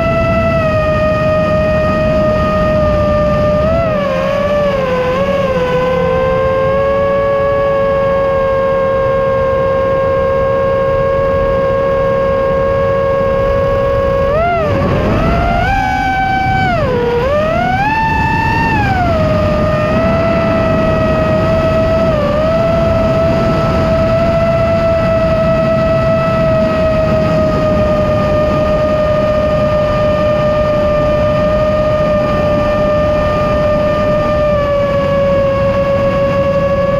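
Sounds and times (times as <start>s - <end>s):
quadcopter motors whining: 0.0s - 36.9s
rush of air: 13.2s - 25.4s.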